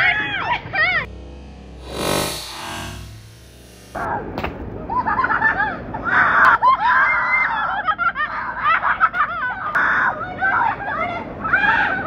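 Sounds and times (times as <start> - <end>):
children shrieking and laughing: 4.9 - 12.0.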